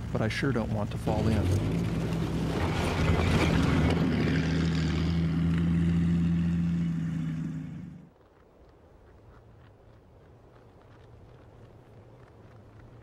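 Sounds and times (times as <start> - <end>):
rattle of tracks: 0.0 - 5.9
tracked vehicle engine passing: 0.0 - 8.1.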